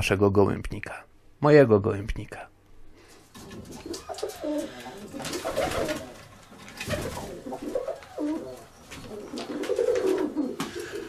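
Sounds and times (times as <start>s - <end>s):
pigeons cooing: 3.3s - 11.0s.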